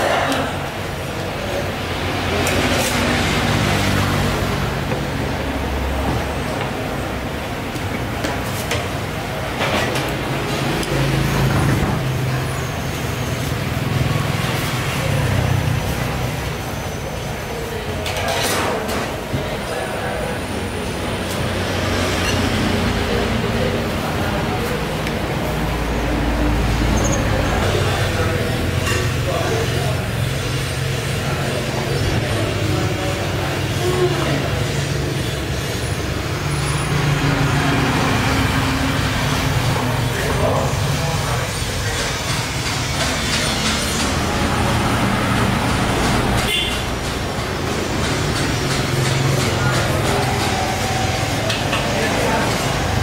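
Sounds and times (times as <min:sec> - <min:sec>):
road traffic rumble: 0:00.0 - 0:53.0.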